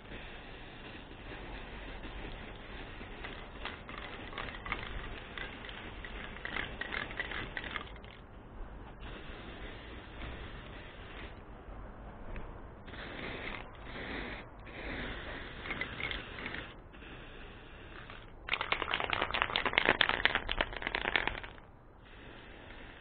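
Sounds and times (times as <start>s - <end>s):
spray paint can hissing: 0.0s - 8.3s, 8.9s - 11.4s, 12.8s - 23.0s
spray can rattling when shaken: 1.4s - 8.3s, 14.8s - 16.8s, 17.8s - 21.7s.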